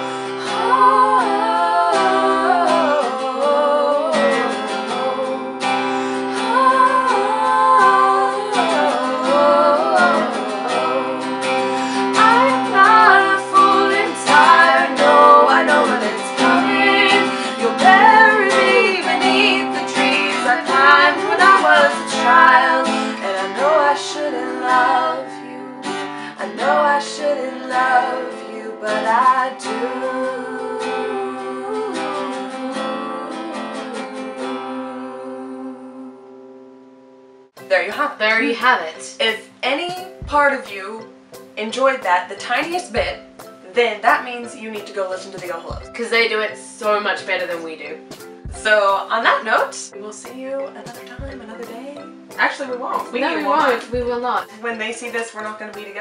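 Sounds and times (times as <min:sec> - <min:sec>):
strummed acoustic guitar: 0:00.0 - 0:35.5, 0:37.5 - 0:56.0
women singing together: 0:00.0 - 0:36.3, 0:42.1 - 0:43.2, 0:44.3 - 0:56.0.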